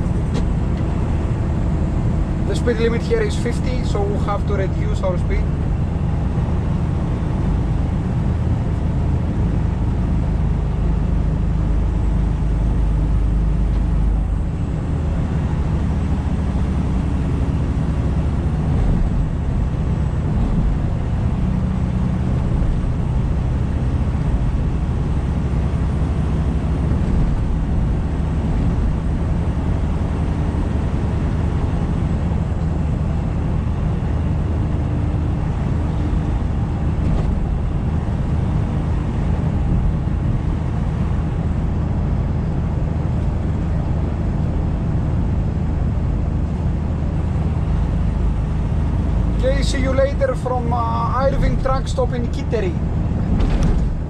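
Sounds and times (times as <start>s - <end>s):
truck diesel engine drone: 0.0s - 54.0s.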